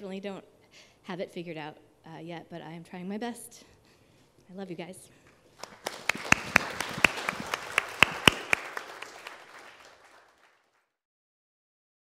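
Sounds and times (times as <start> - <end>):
audience applauding: 5.6 - 10.9
loud claps close to microphone: 5.6 - 10.9.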